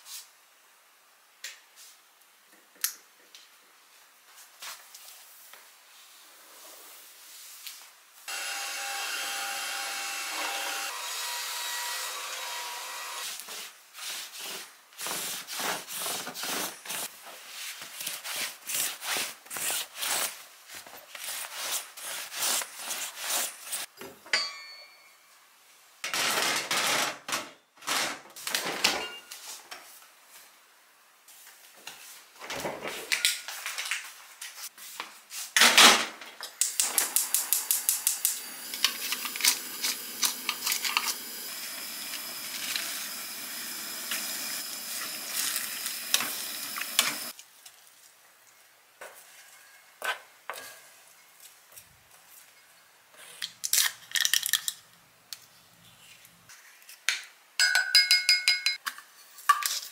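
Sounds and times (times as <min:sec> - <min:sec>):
steady hiss: 0:36.6 - 0:47.4.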